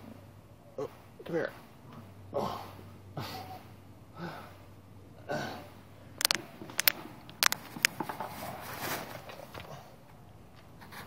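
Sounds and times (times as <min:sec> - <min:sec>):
phone handling noise: 0:06.2 - 0:08.0
sharp clicks and knocks: 0:06.2 - 0:08.1.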